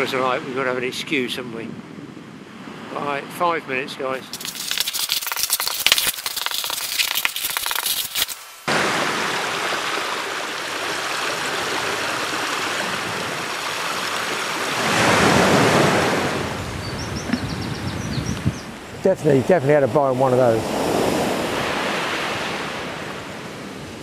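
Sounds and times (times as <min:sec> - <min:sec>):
marker scratching on paper: 0:04.2 - 0:08.4
water falling over rock: 0:04.2 - 0:08.4.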